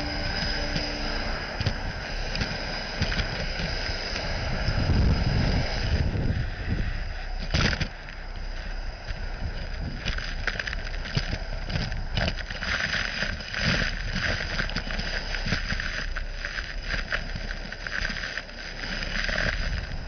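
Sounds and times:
vacuum suction air rushing: 0.0s - 7.3s.

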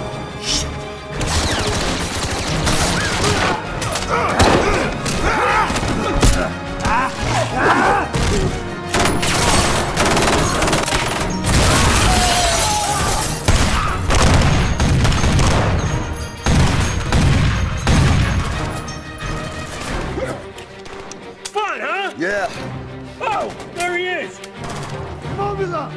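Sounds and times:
film music score: 0.0s - 25.9s
rapid gunfire: 1.2s - 3.8s, 8.8s - 12.0s, 13.5s - 18.7s.

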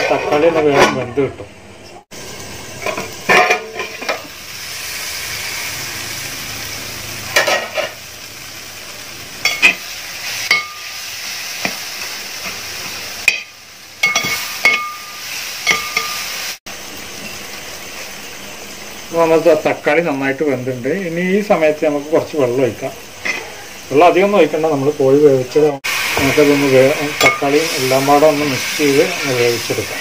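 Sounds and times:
masala sizzling in a pot: 0.0s - 30.0s
spatula clinking on pot: 13.2s - 16.2s.

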